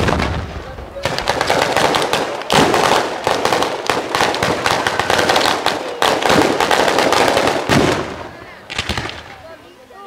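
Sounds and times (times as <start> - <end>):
firecracker bangs crackling: 0.0 - 9.6.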